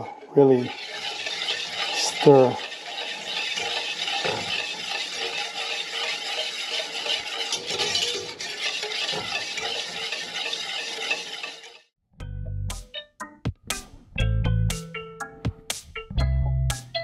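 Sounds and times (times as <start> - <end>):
utensil stirring in saucepan: 0.0 - 11.9.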